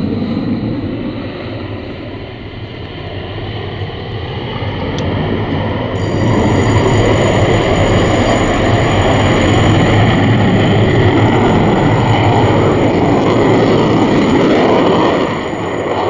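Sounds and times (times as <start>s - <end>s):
jet engine roar: 0.0s - 16.0s.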